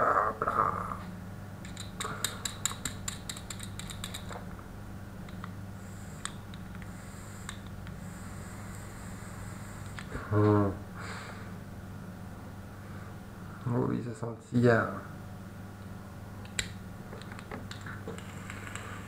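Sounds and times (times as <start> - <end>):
exhaled vapour hiss: 5.7 - 11.6, 17.8 - 19.0
vape coil crackling and popping: 17.7 - 19.0.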